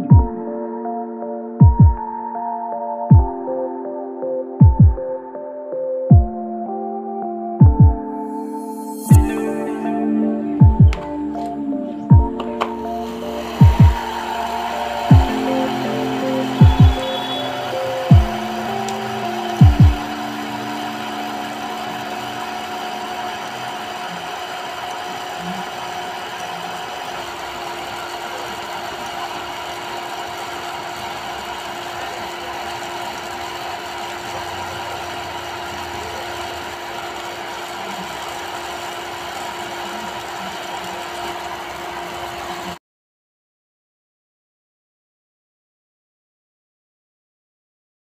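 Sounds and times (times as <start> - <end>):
small motor whine: 12.3 - 42.8.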